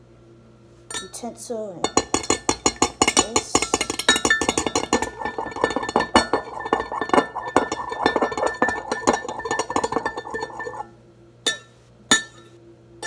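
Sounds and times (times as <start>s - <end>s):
metal clinking on glass: 1.8s - 10.9s
fork whisking eggs in glass: 2.0s - 10.9s.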